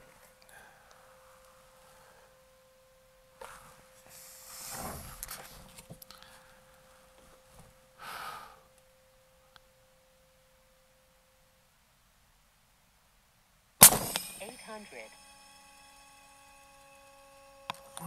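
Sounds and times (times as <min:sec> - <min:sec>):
faint steady tone: 0:00.0 - 0:18.0
person breathing out: 0:08.0 - 0:08.7.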